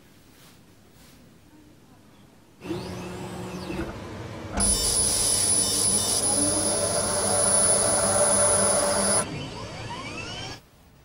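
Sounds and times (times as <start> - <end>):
quiet machine hum: 2.6 - 10.6
laser engraving machine noise: 4.6 - 10.6.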